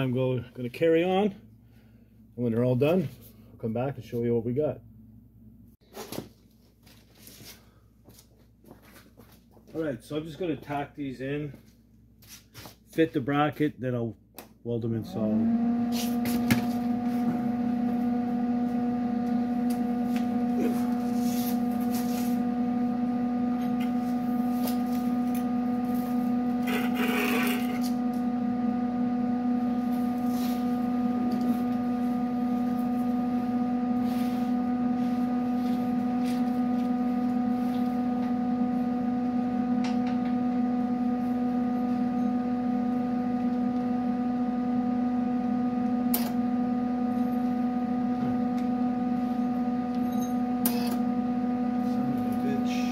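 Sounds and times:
electric motor humming: 0:15.1 - 0:52.9.

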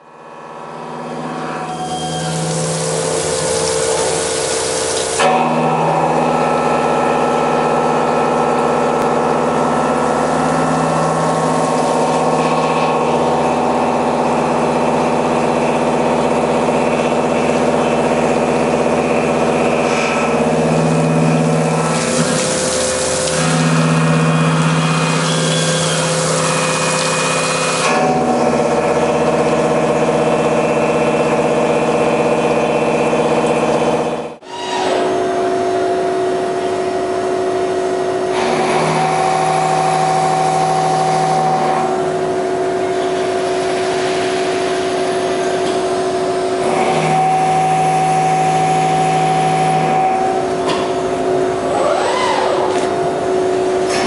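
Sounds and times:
machine drone with held tones: 0:00.0 - 0:04.5
coolant spray hiss: 0:02.2 - 0:05.2, 0:21.8 - 0:23.9.

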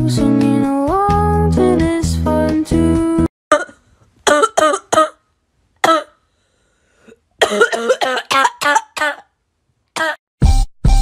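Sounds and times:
person coughing: 0:03.5 - 0:05.2, 0:05.8 - 0:06.2, 0:07.0 - 0:09.3, 0:10.0 - 0:10.2.

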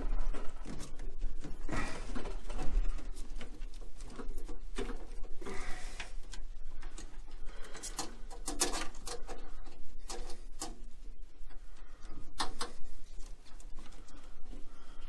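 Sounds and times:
steady low hum: 0:00.0 - 0:15.0
plastic parts clicking and tapping: 0:02.2 - 0:11.0, 0:12.1 - 0:14.0.

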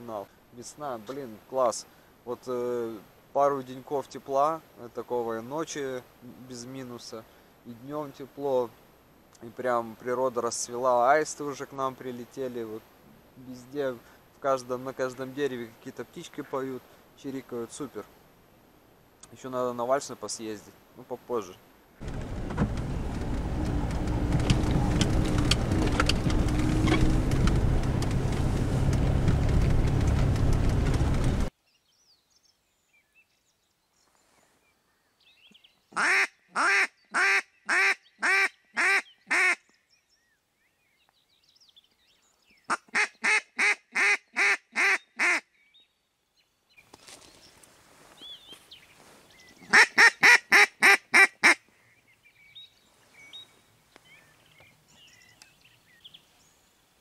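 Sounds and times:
car engine and road noise: 0:22.0 - 0:31.5
duck quacking: 0:36.0 - 0:39.6, 0:42.7 - 0:45.4, 0:49.7 - 0:51.6.

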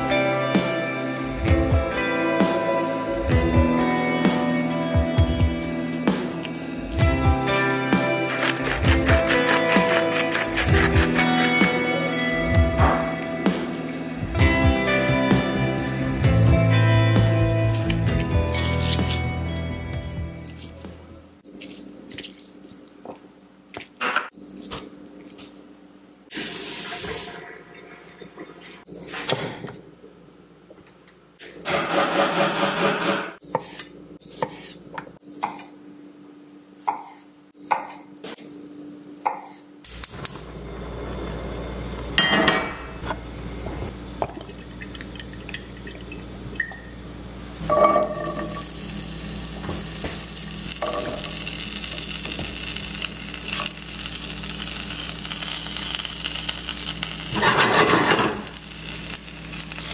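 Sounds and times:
potatoes sizzling: 0:47.6 - 0:59.9.

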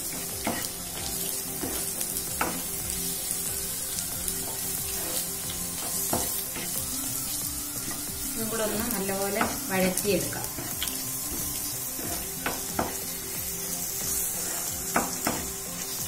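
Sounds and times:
food sizzling in oil: 0:00.0 - 0:16.0
spatula scraping pan: 0:04.3 - 0:06.9, 0:10.4 - 0:16.0.

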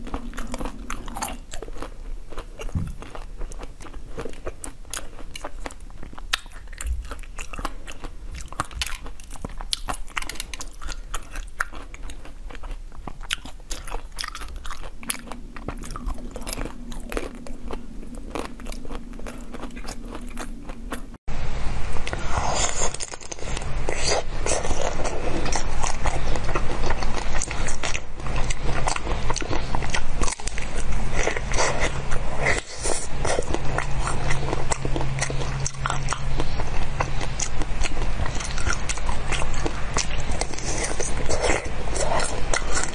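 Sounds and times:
crunching frozen grapes: 0:00.0 - 0:21.2, 0:22.4 - 0:42.9
wet chewing and biting: 0:00.0 - 0:21.2, 0:22.0 - 0:42.9.

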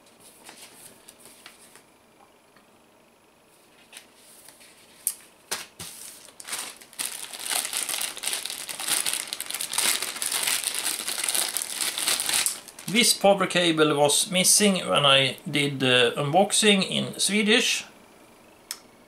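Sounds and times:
plastic bag crinkling: 0:06.0 - 0:13.2.

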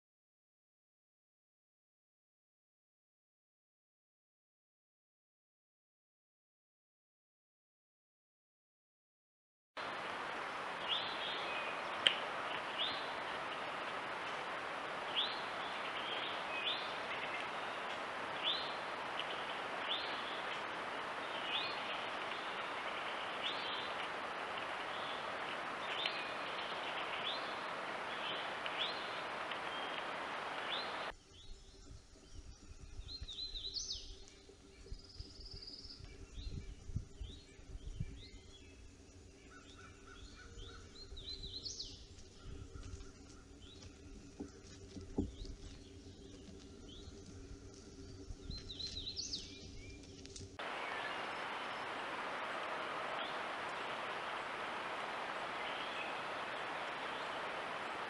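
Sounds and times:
steady hiss: 0:09.8 - 0:31.1, 0:41.5 - 0:58.0
birds singing: 0:09.9 - 0:58.0
bird chirping: 0:10.8 - 0:47.2, 0:47.9 - 0:58.0.

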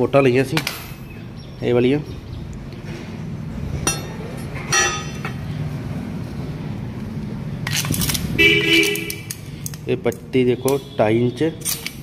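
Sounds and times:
ringing metal clang: 0:03.9 - 0:05.4
steel strips clanging on metal: 0:11.6 - 0:12.0.

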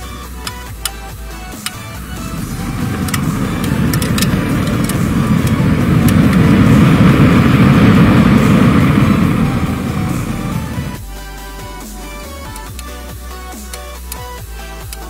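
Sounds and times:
match-head booster burning: 0:01.5 - 0:11.0.

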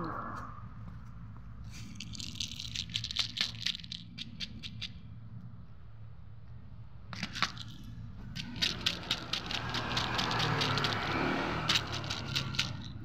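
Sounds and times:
cats crunching dry kibble: 0:01.7 - 0:05.0, 0:07.2 - 0:13.0.

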